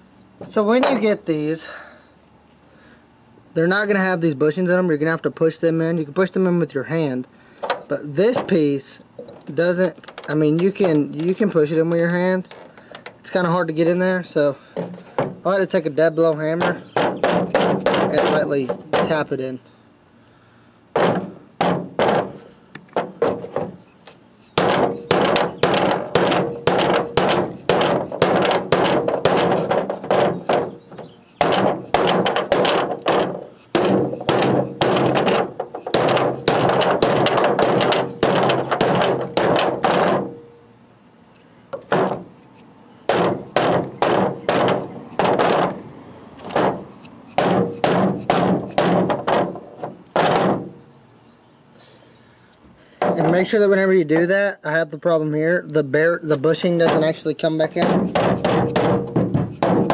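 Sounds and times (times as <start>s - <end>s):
hammer tapping metal part: 16.5s - 19.2s, 24.6s - 40.4s, 56.8s - 59.9s.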